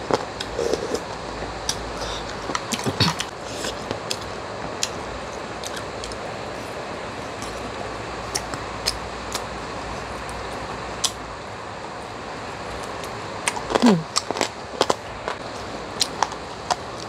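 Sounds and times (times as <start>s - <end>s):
close-up chewing clicks: 8.3s - 9.5s, 10.2s - 11.2s.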